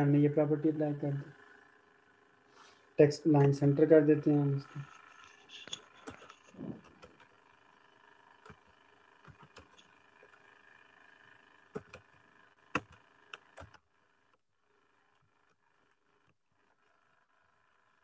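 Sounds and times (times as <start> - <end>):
faint steady hum: 0.0 - 18.0
computer keyboard keys clicking: 8.4 - 9.9, 11.8 - 12.1, 12.8 - 13.8.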